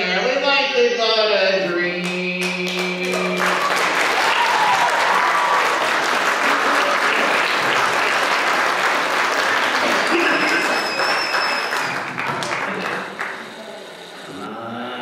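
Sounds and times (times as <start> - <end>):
audience applauding: 2.6 - 14.0.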